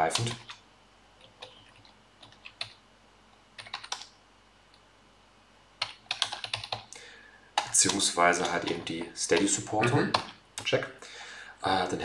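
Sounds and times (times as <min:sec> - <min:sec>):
typing on computer keyboard: 0:00.1 - 0:00.6, 0:01.2 - 0:02.8, 0:03.6 - 0:04.1, 0:05.8 - 0:07.0, 0:07.6 - 0:10.4.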